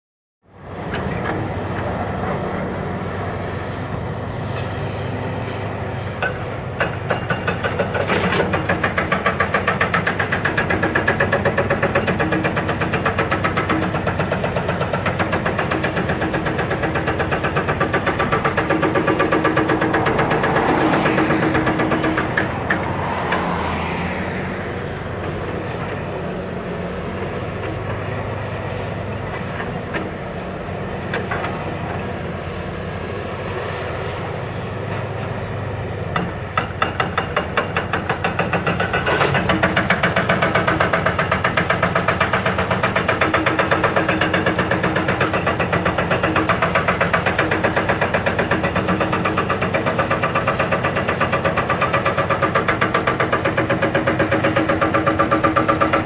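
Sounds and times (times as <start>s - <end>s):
excavator diesel engine running: 0.5s - 56.0s
hydraulic hammer pounding rock: 6.1s - 23.5s, 36.1s - 56.0s.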